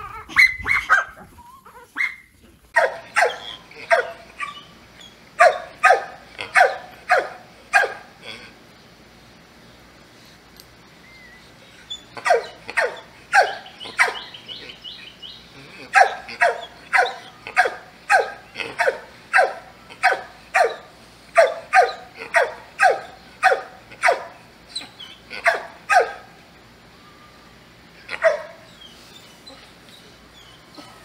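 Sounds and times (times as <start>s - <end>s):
dog barking: 0.3s - 1.2s, 2.8s - 4.6s, 5.4s - 8.0s, 12.2s - 14.3s, 15.9s - 24.4s, 25.4s - 26.3s, 28.2s - 28.6s.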